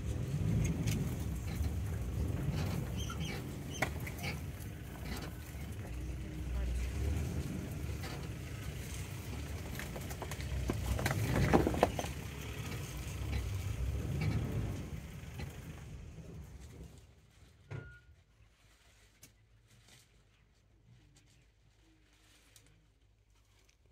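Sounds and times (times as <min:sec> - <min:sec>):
crackles and clicks: 0:00.0 - 0:15.8
vehicle engine rumbling: 0:00.0 - 0:23.5.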